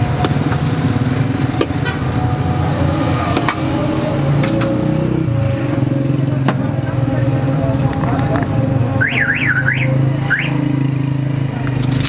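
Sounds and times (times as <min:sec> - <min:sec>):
traffic engine hum: 0:00.0 - 0:12.0.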